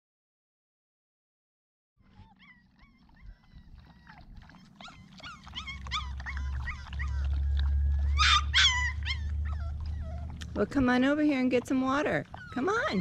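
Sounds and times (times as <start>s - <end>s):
puppies whining and yipping: 2.0s - 13.0s
low rumble: 5.6s - 12.6s.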